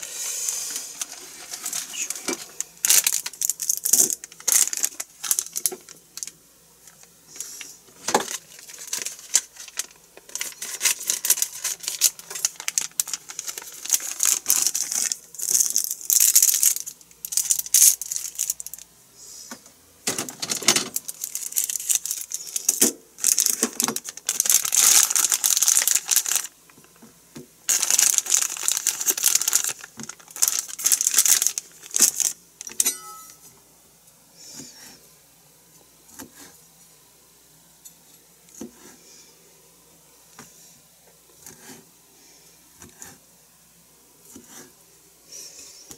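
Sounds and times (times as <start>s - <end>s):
plastic packaging crinkling and tearing: 0.7s - 18.9s, 20.2s - 27.0s, 27.7s - 32.8s.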